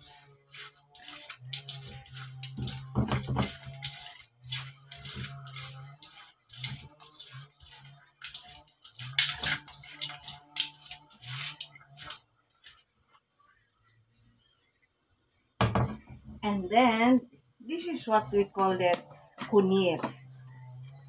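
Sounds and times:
fingers scraping metal wok: 0:00.0 - 0:12.8.

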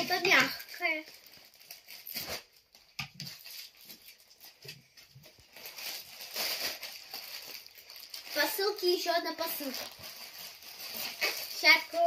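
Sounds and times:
plastic bag crinkling: 0:00.0 - 0:12.0
scissors cutting plastic: 0:09.4 - 0:12.0.

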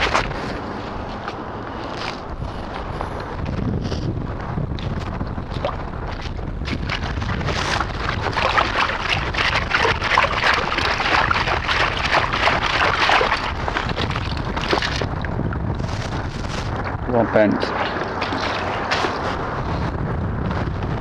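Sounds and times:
wind rumble on microphone: 0:00.0 - 0:21.0
scoop digging in wet sand: 0:17.6 - 0:19.4.

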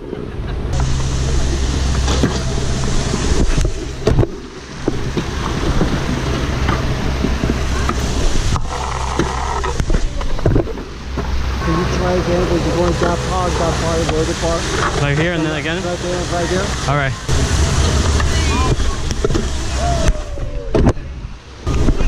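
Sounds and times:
scooter wheels rolling on stone: 0:01.9 - 0:11.4.

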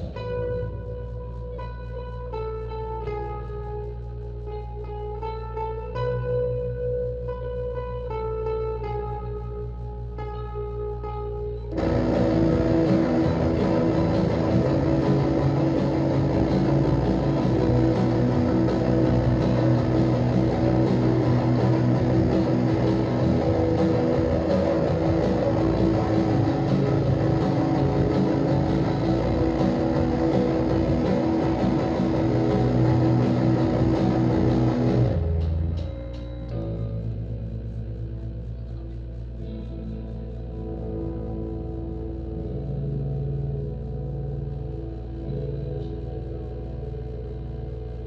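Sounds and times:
drums: 0:00.0 - 0:01.6, 0:11.7 - 0:38.5
bass guitar: 0:00.0 - 0:48.0
dense electric guitar wall: 0:00.0 - 0:48.0.

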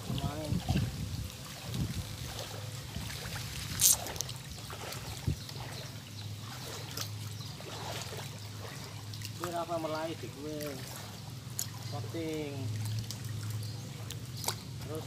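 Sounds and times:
water lapping and trickling: 0:00.0 - 0:15.0
sharp splash: 0:00.6 - 0:09.5.

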